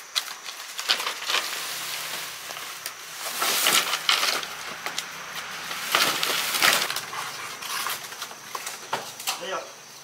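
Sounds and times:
crackling and rustling: 0.0s - 9.5s.

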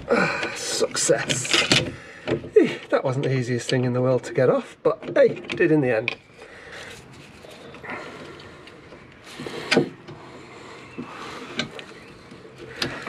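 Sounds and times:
light metal clicks and knocks: 0.4s - 2.6s, 4.9s - 6.3s.

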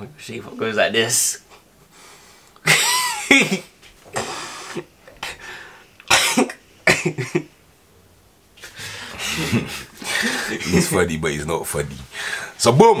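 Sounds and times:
boy laughing: 2.6s - 5.2s, 9.2s - 10.9s.

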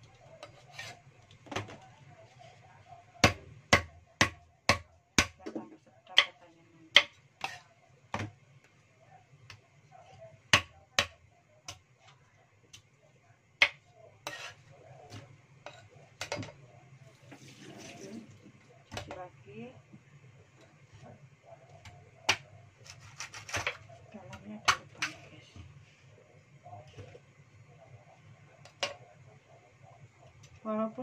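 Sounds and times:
cleaver chopping on wooden block: 3.2s - 5.4s.

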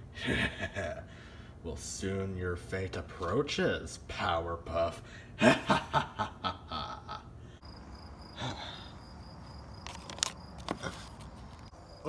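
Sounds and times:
crickets chirping: 5.9s - 12.0s.

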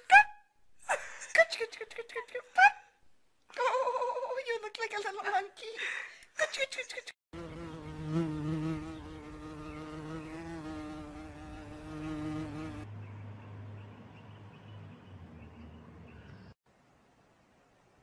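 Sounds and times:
insect buzzing: 7.4s - 12.8s.

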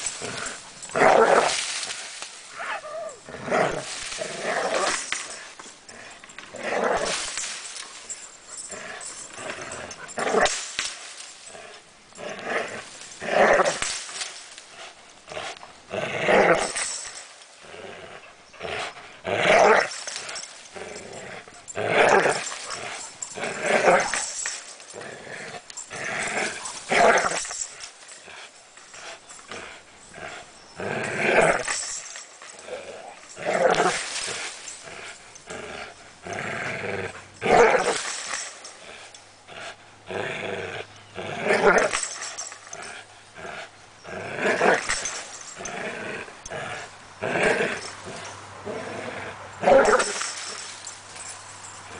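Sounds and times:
dog growling: 11.4s - 51.8s.

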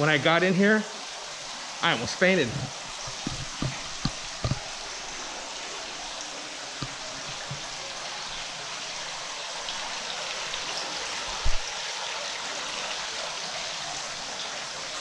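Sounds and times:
steady rushing hiss: 0.0s - 10.5s.

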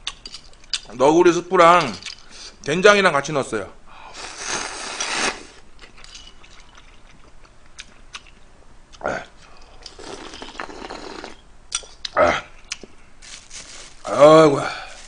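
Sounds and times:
man slurping noodles: 4.2s - 5.6s, 9.9s - 11.4s
chewing: 5.8s - 13.0s.

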